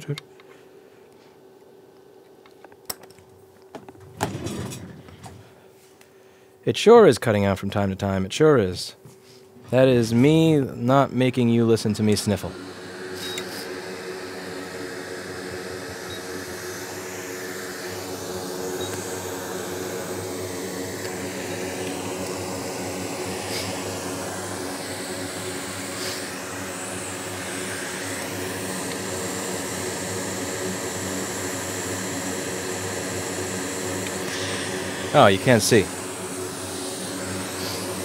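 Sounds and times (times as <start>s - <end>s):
electric blower motor hum: 11.3s - 38.0s.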